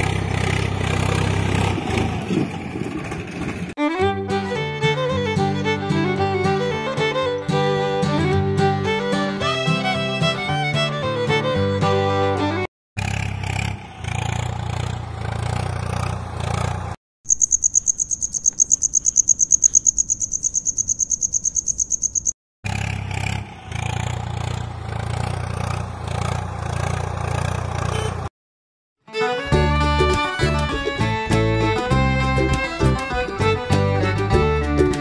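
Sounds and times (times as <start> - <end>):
tractor engine running: 0.0 - 7.6, 12.4 - 28.3, 29.2 - 35.0
cricket chirping trill: 17.3 - 22.4.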